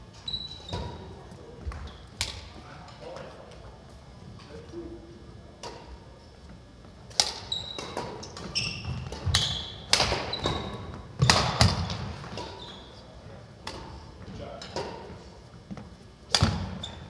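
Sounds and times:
sneakers squeaking on wooden court: 0:00.2 - 0:01.2, 0:07.3 - 0:13.1, 0:16.4 - 0:17.0
rackets hitting shuttlecock: 0:07.1 - 0:12.6, 0:16.3 - 0:16.9.

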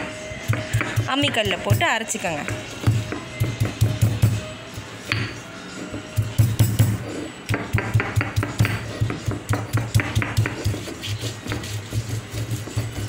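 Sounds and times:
stone roller grinding on slab: 0:06.6 - 0:07.4, 0:08.0 - 0:13.0.

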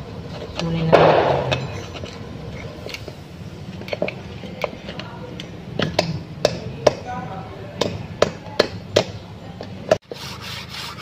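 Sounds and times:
screwdriver scraping and clicking on metal: 0:01.5 - 0:03.2.

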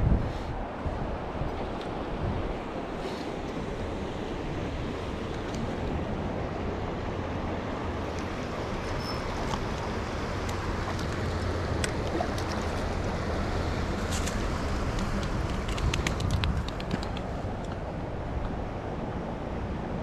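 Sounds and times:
small sharp clicks: 0:14.1 - 0:17.8.

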